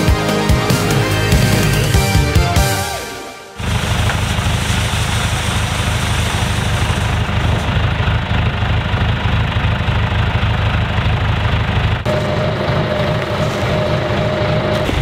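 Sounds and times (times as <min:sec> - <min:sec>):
tractor diesel engine idling: 0:03.6 - 0:15.0.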